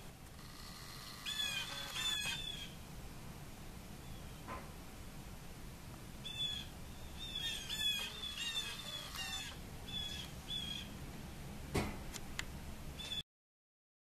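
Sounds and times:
songbird calling: 1.1s - 2.8s, 6.2s - 11.0s, 13.0s - 13.2s.

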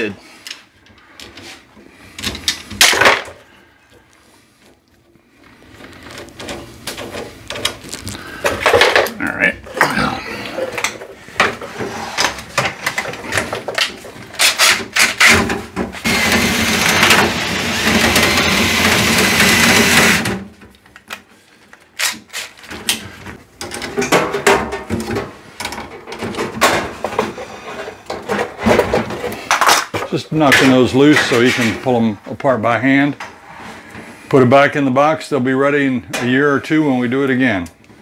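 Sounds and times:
cordless drill running: 16.0s - 20.3s.

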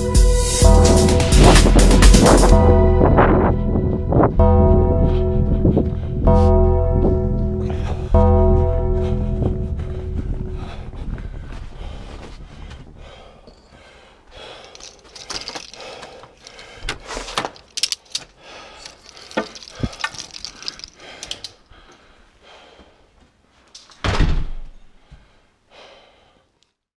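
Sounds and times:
door closing thud: 24.0s - 24.8s.

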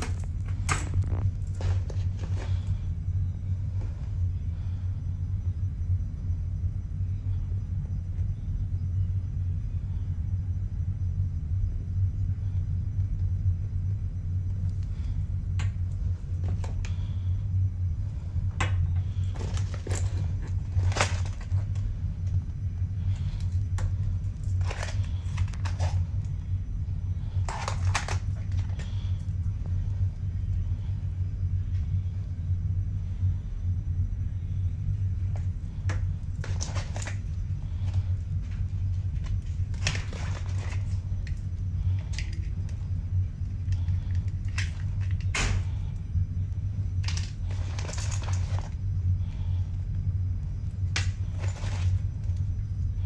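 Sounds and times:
toiletry items rustling and clicking: 0.0s - 2.8s, 15.6s - 17.2s, 18.4s - 22.4s, 23.0s - 26.4s, 27.2s - 29.4s, 35.3s - 42.9s, 43.6s - 45.8s, 47.0s - 48.8s, 50.9s - 52.5s
steady low hum: 0.0s - 53.0s
plastic items clicking: 18.6s - 21.9s, 23.4s - 26.0s, 27.4s - 28.9s, 43.8s - 45.6s.

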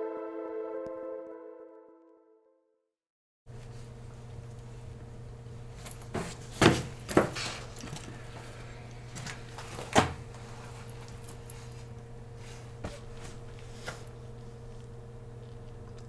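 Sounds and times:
low electrical hum: 3.5s - 16.0s.

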